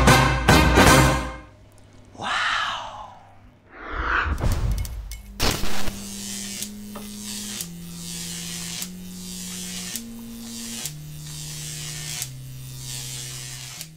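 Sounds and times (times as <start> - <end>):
buzzing electronic tone: 4.6 - 13.8.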